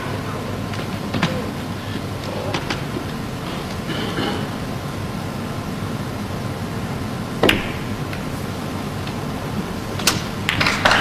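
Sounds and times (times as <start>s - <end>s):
snooker cue striking balls: 0.0s - 4.8s, 7.3s - 11.0s
steady broadcast hiss: 0.0s - 11.0s.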